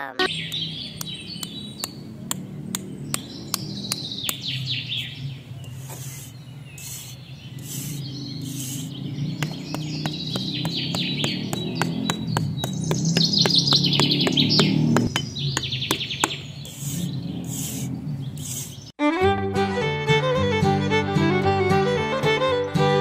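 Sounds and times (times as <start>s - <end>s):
small birds chirping: 0.0s - 19.0s
regular ticking clicks: 0.1s - 4.9s, 8.6s - 17.0s
short hissy swishes: 5.7s - 9.0s, 16.6s - 18.9s.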